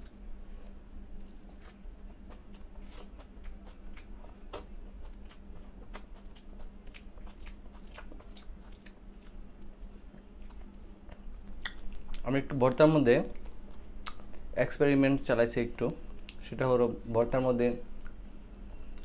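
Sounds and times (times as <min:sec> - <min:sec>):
person chewing food: 0:00.0 - 0:12.2, 0:13.4 - 0:14.5
faint steady hum: 0:00.0 - 0:19.0
wet mouth clicks and smacks: 0:10.5 - 0:12.2, 0:13.4 - 0:14.4.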